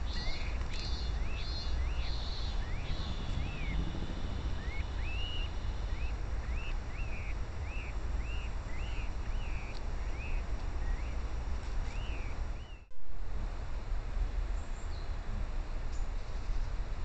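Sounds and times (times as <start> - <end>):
songbird whistling notes: 0.0 - 11.2
low rumble: 1.2 - 6.9.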